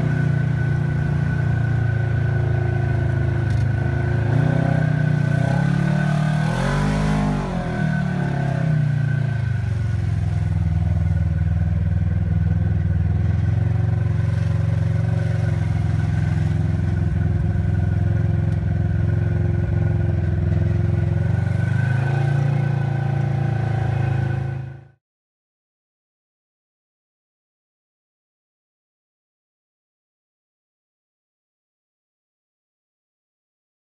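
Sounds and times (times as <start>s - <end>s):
vehicle engine idling: 0.0s - 25.0s.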